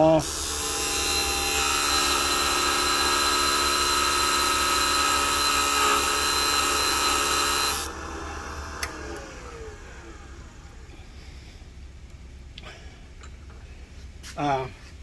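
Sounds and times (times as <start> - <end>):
grinder wheel grinding metal: 0.0 - 8.0
motor winding down whine: 0.0 - 11.0.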